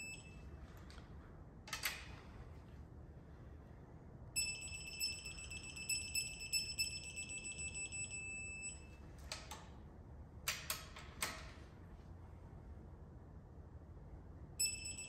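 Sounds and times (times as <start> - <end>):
torque wrench beeping: 14.6 - 15.0.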